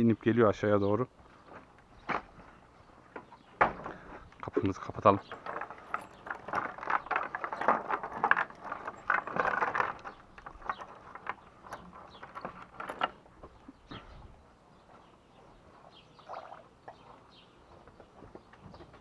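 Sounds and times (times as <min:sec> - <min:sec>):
door rattling and clanking: 0:05.0 - 0:13.3.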